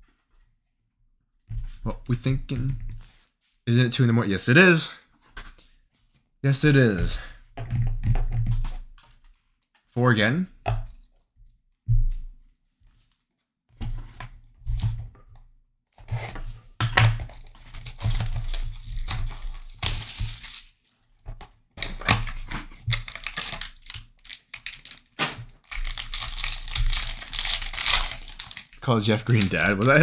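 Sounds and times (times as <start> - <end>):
foil pack crinkling: 17.3 - 20.8, 22.8 - 30.0
cardboard box tearing: 17.5 - 20.7, 22.9 - 30.0.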